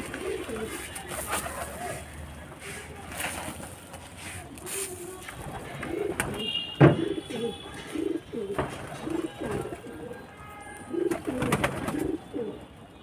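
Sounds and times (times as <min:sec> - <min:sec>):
pigeons cooing: 0:00.0 - 0:00.8, 0:05.8 - 0:06.3, 0:10.9 - 0:12.6.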